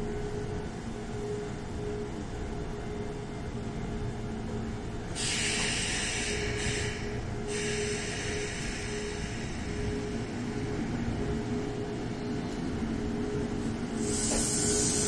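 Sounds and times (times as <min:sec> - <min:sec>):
electric train humming: 0:00.0 - 0:15.0
compressed air hissing: 0:05.2 - 0:09.6, 0:14.0 - 0:15.0.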